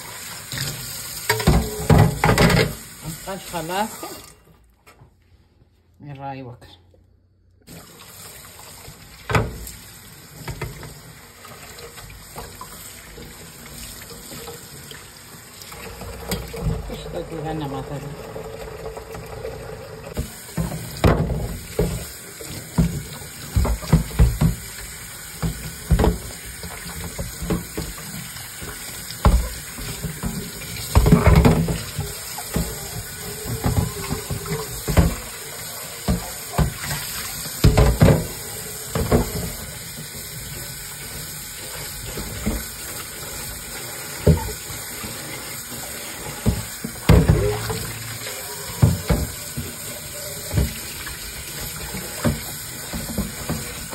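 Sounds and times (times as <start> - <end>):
basket being scrubbed: 20.2 - 53.9
basket knocking against sink: 22.7 - 24.8, 25.4 - 28.0, 29.2 - 35.4, 36.0 - 39.7, 46.4 - 48.1.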